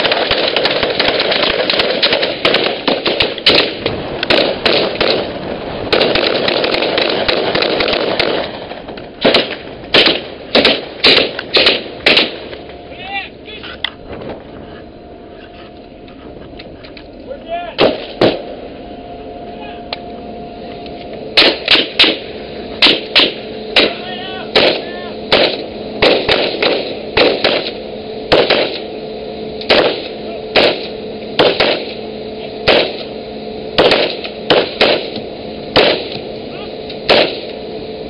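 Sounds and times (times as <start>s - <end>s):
rifle single shots: 0.0s - 5.3s, 5.9s - 8.5s, 9.2s - 12.5s, 17.8s - 18.4s, 21.4s - 22.2s, 22.8s - 28.9s, 29.6s - 32.0s, 32.6s - 33.1s, 33.8s - 36.2s, 37.1s - 37.6s
steady hum: 0.0s - 38.0s.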